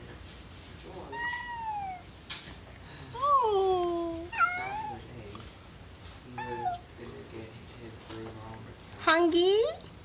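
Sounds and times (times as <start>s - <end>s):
cat howling meows: 4.3s - 5.0s.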